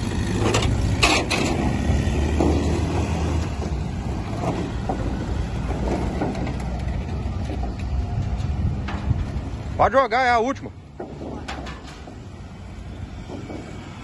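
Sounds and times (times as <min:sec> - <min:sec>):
low outdoor rumble: 0:00.0 - 0:14.0.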